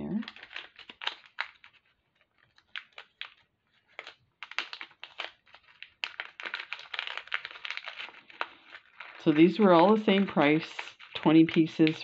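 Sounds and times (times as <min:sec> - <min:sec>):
plastic bag clicks and crinkles: 0:00.0 - 0:12.0.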